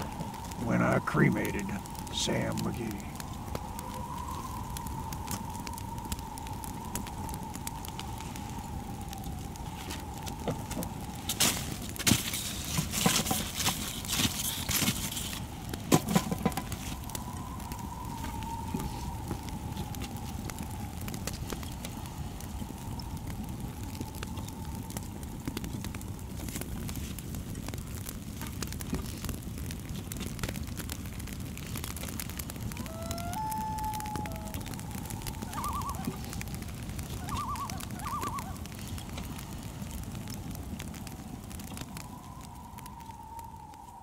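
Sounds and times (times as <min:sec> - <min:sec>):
faint steady whine: 0:00.0 - 0:27.6
campfire crackling and popping: 0:00.0 - 0:44.0
low rumbling hiss: 0:00.0 - 0:44.0
warbling whistle: 0:32.7 - 0:36.4, 0:37.1 - 0:38.6.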